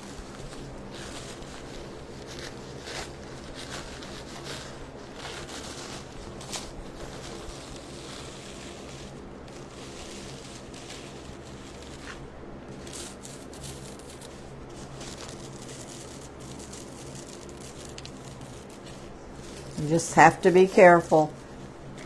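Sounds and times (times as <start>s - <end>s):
low electrical hum: 0.0s - 22.0s
paper napkin rustling: 0.0s - 22.0s.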